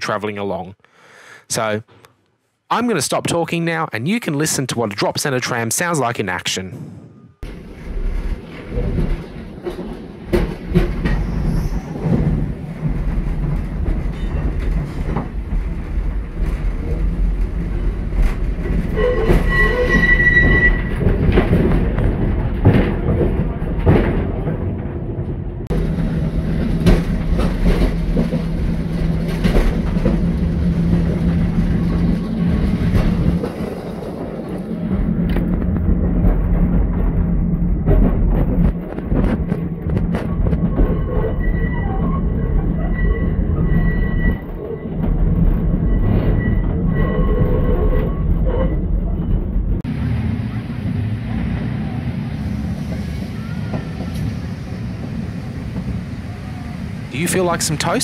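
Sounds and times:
tram wheels rumbling on rail: 6.4s - 58.0s
high squeal: 11.0s - 12.1s, 19.0s - 21.0s, 40.8s - 44.9s, 45.8s - 49.3s.

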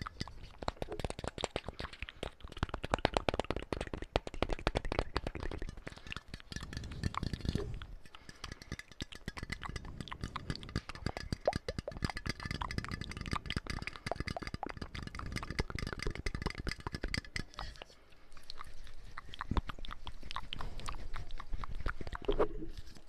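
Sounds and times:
quick clicks and taps: 0.0s - 17.8s
mouth sounds: 0.0s - 23.0s.

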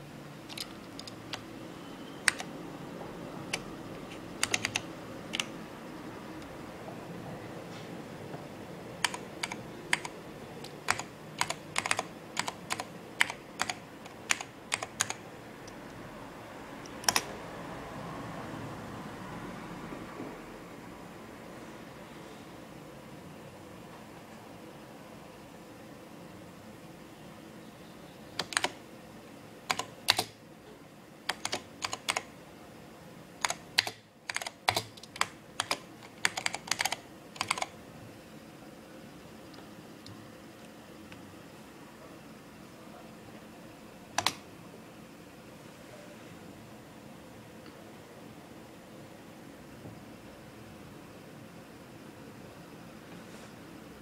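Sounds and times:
keyboard keystrokes clicking: 0.5s - 1.5s, 2.2s - 2.5s, 3.5s - 5.5s, 9.0s - 15.2s, 16.8s - 17.3s, 28.4s - 28.8s, 29.7s - 30.4s, 31.3s - 32.3s, 33.4s - 37.7s, 44.2s - 44.4s.

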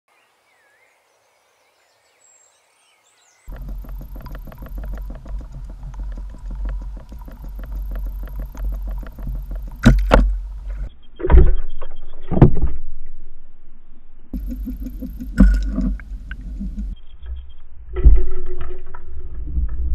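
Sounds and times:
fast fine clicking: 3.5s - 10.9s
underwater rumble: 3.5s - 10.9s, 14.3s - 19.9s
heavy underwater thumps: 3.5s - 11.6s, 14.4s - 17.0s.

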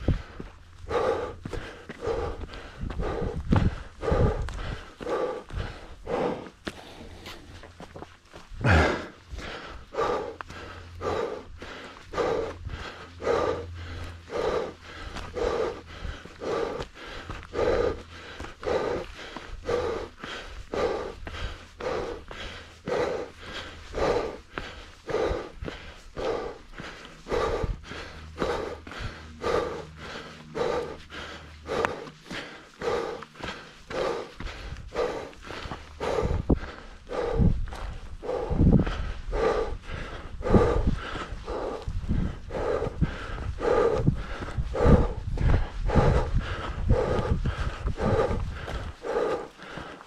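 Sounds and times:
person breathing hard: 0.0s - 50.0s
footsteps scuffing on dirt: 0.2s - 10.8s, 24.5s - 38.1s, 46.5s - 50.0s.

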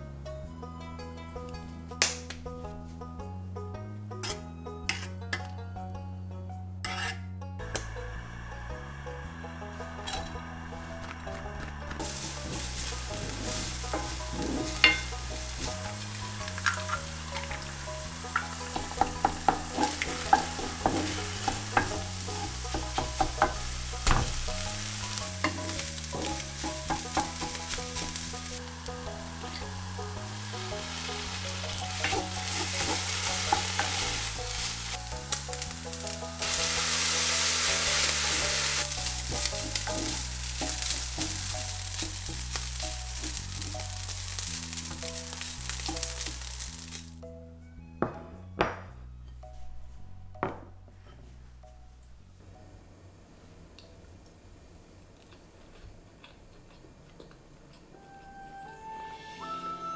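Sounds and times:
wooden spatula scraping a pan: 6.8s - 7.3s, 12.0s - 28.7s, 29.3s - 42.8s
fried rice sizzling in oil: 12.0s - 47.2s.

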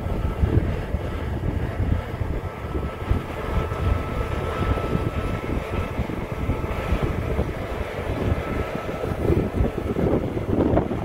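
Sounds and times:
combine harvester low rumble: 0.0s - 11.0s
faint high whine: 0.0s - 11.0s.

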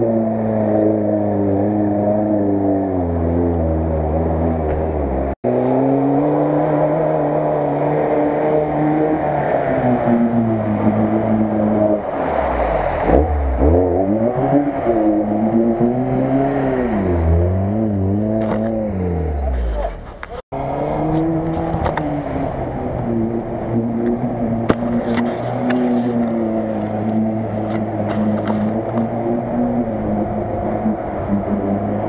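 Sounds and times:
car engine revving: 0.0s - 32.0s
water splashing: 9.8s - 16.9s.

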